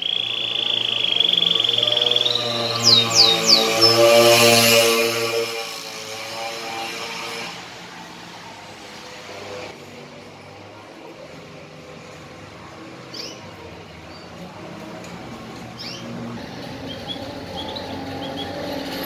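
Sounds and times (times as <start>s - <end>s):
canary chirping: 0.0s - 6.7s, 13.1s - 14.4s, 15.7s - 19.0s.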